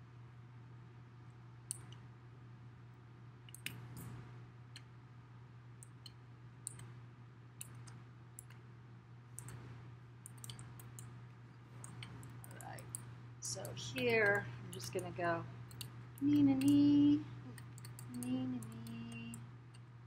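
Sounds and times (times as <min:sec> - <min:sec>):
steady low hum: 0:00.0 - 0:20.0
faint clicks: 0:09.4 - 0:09.6, 0:10.2 - 0:11.1, 0:17.5 - 0:19.9.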